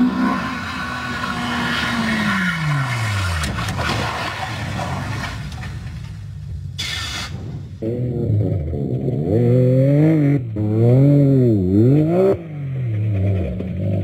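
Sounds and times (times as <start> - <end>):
buggy engine revving: 7.2 - 14.0.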